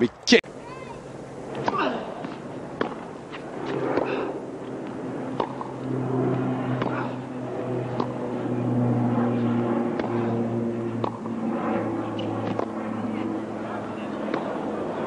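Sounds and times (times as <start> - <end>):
steady low drone: 0.0 - 15.0
tennis ball bouncing: 1.5 - 4.1, 4.8 - 5.7, 6.8 - 7.0, 12.2 - 12.7
tennis racket hitting ball: 1.6 - 4.1, 5.4 - 5.7, 6.8 - 7.1, 12.4 - 12.7.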